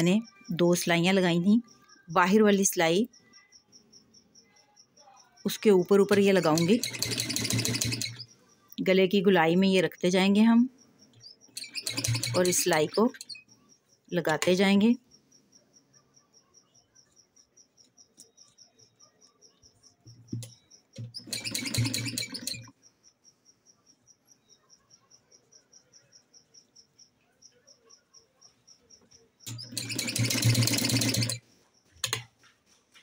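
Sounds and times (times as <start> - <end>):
faint high chirping: 0.0 - 32.0
sewing machine stitching: 6.0 - 8.3, 11.5 - 13.4, 21.0 - 22.7, 29.5 - 31.4.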